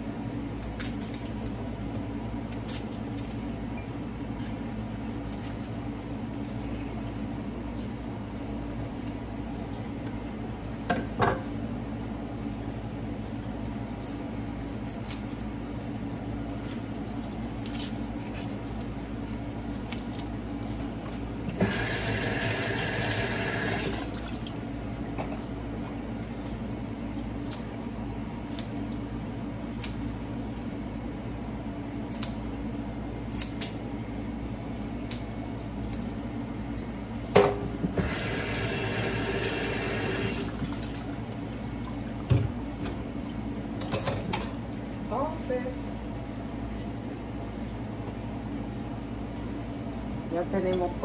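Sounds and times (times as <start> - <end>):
water running: 16.6 - 26.8, 35.0 - 51.0
scissors snipping herbs: 27.4 - 27.7, 28.4 - 28.8, 29.7 - 30.0, 32.0 - 32.4, 33.2 - 33.8, 34.8 - 35.3.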